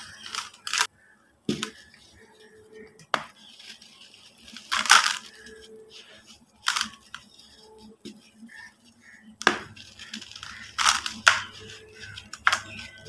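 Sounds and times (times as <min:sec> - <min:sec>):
crumbs and dust trickling: 0:00.0 - 0:13.0
hands crushing dry cement: 0:04.5 - 0:07.3, 0:09.4 - 0:13.0.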